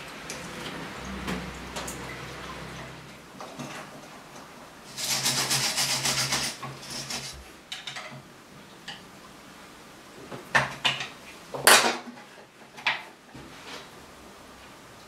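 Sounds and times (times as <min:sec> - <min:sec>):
wire brush scrubbing metal: 0:04.9 - 0:07.5.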